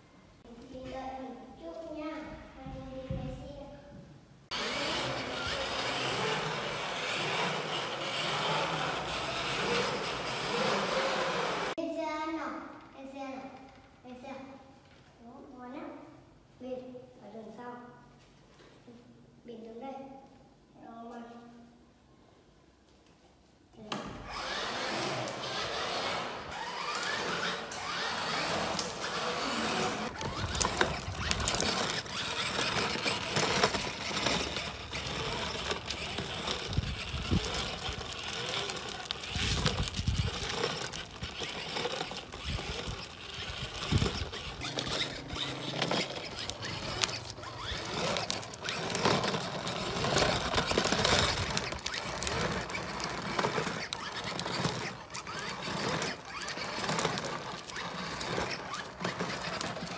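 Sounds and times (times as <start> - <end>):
toy motorbike motor whirring: 4.5 - 11.8, 24.2 - 59.9.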